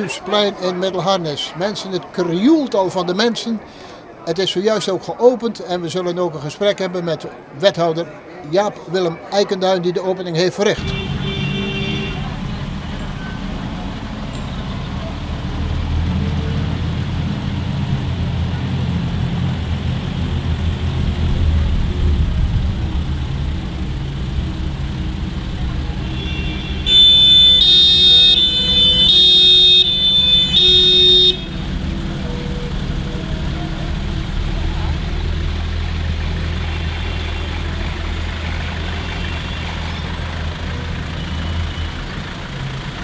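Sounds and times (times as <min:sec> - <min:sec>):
vehicle horn toots: 0:10.8 - 0:12.5, 0:26.0 - 0:31.7
trucks driving past rumbling: 0:10.8 - 0:43.0.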